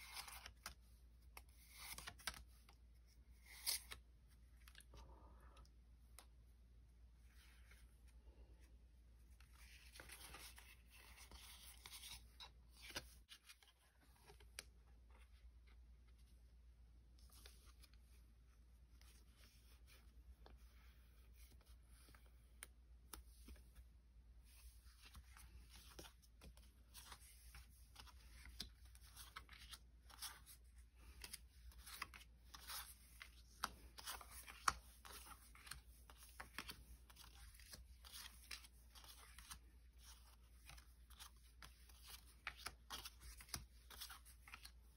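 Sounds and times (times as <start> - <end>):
trading cards handled: 0.0 - 5.0, 9.3 - 15.8, 24.5 - 44.9.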